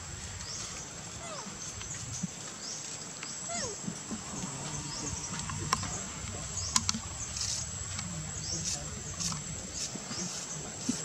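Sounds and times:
sharp clicks: 6.7s - 7.1s.

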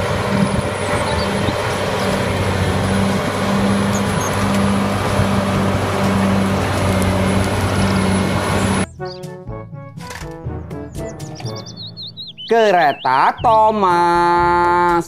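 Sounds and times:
bulldozer diesel engine under load: 0.0s - 9.0s.

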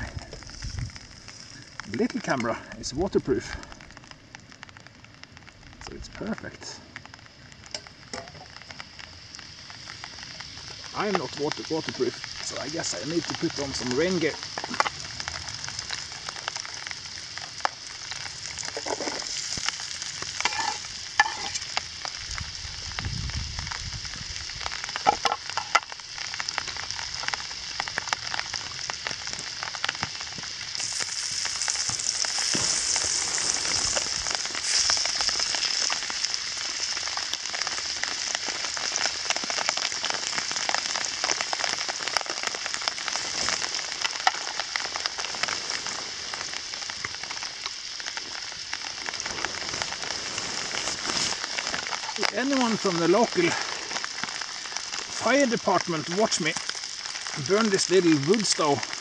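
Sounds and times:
onions sizzling in frying pan: 0.0s - 59.0s.

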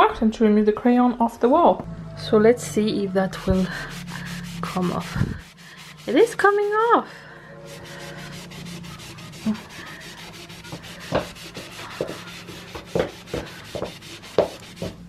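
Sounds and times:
sponge scrubbing a wall: 3.4s - 15.0s.

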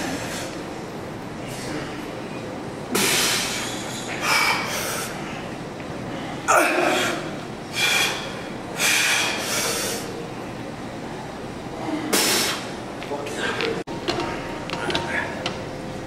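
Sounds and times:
man breathing forcefully: 6.1s - 10.1s.

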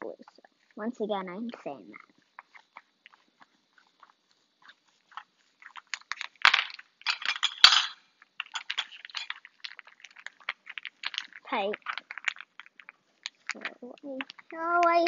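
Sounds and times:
plastic crinkling: 1.9s - 15.0s
sharp snaps: 12.9s - 15.0s.

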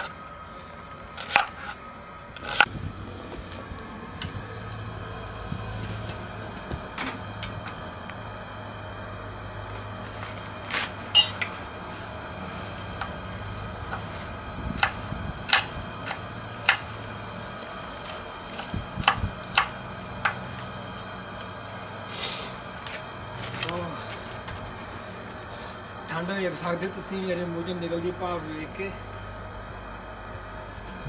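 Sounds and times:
low hum: 0.0s - 31.0s
knife chopping on wooden board: 14.8s - 16.9s.

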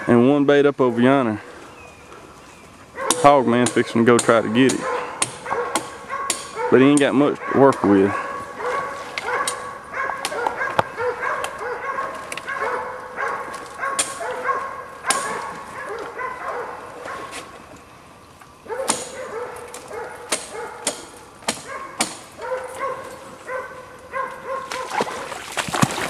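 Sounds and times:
dog barking: 3.0s - 4.0s, 4.6s - 17.4s, 18.7s - 21.0s, 21.6s - 25.3s.

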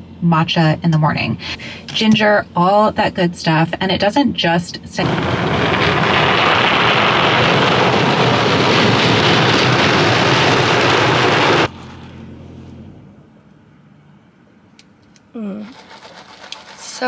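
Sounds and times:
low hum: 0.0s - 16.8s
car wash water and brushes: 15.6s - 17.0s.

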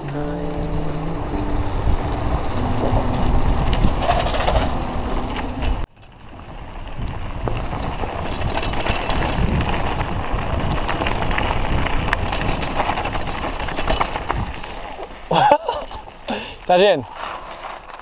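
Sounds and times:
bike rattling and clicking: 0.0s - 18.0s
wind rushing over microphone: 0.5s - 14.8s.

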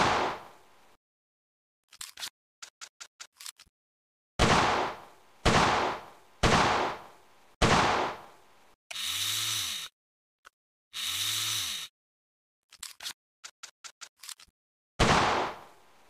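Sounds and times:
gunshot: 0.0s - 0.5s, 4.4s - 8.3s, 15.0s - 15.7s
small metallic clicks: 1.9s - 3.7s, 12.7s - 14.5s.

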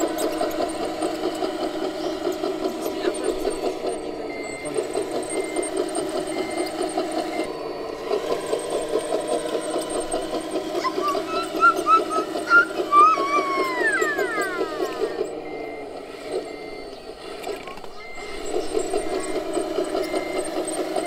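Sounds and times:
beeping alarm: 0.0s - 21.0s
diesel engine sound effect: 0.0s - 21.0s
falling whines: 0.0s - 21.0s
high chirps: 10.2s - 20.6s.

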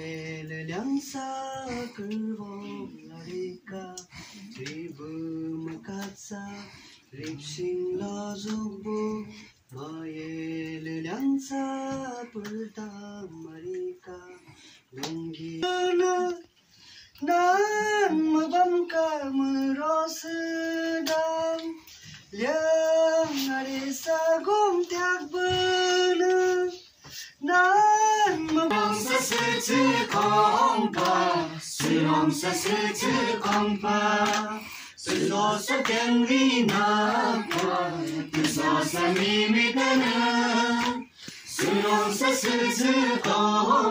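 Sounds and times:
voices singing: 17.2s - 43.9s.

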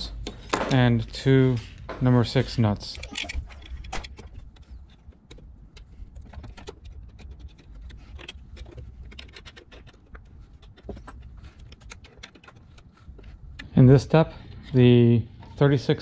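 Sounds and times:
screwdriver clicking on metal screws: 2.9s - 13.0s.

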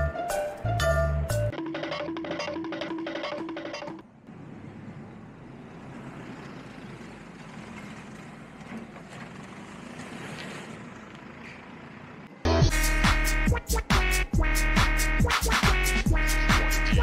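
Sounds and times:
traffic noise: 3.3s - 17.0s
truck engine running: 4.2s - 17.0s.

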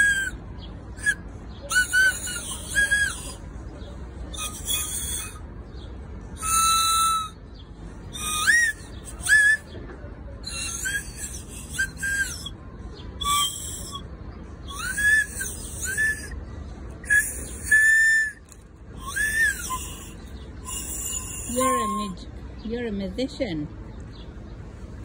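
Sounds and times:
child blowing candy whistle: 0.0s - 0.4s, 1.0s - 3.4s, 4.3s - 5.4s, 6.4s - 7.4s, 8.1s - 9.7s, 10.4s - 12.5s, 13.2s - 14.0s, 14.6s - 16.4s, 17.0s - 22.0s.

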